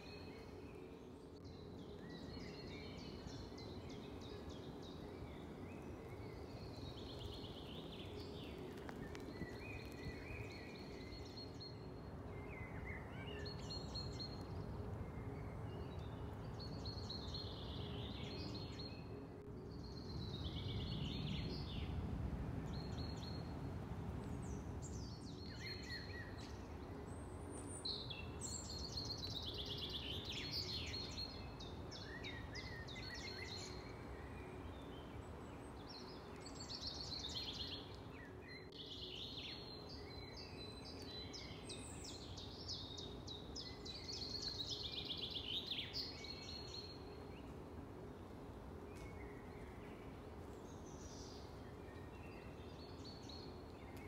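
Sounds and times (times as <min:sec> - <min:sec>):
faint steady hum: 0:00.0 - 0:54.0
songbirds singing: 0:00.0 - 0:54.0
low background rumble: 0:09.3 - 0:25.5.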